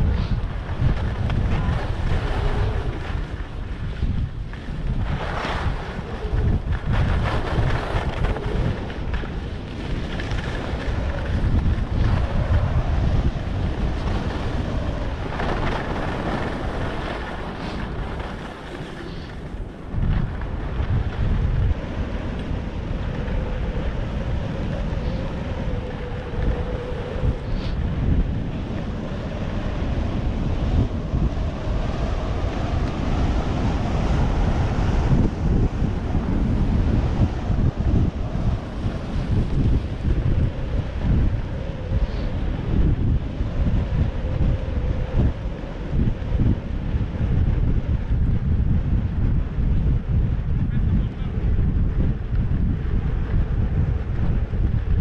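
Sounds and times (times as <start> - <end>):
skis sliding on snow: 0.0 - 12.6, 13.4 - 22.1
wind rumbling on microphone: 0.0 - 55.0.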